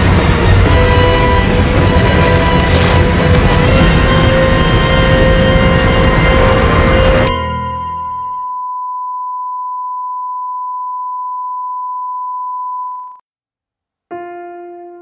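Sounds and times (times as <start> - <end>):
steady pure tone beep: 8.2 - 13.2
slow piano music: 14.1 - 15.0.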